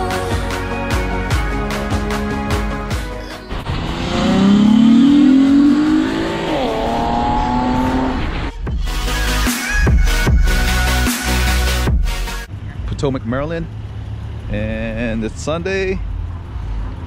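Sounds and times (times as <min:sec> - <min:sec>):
background music: 0:00.0 - 0:12.5
car engine accelerating: 0:03.1 - 0:08.6.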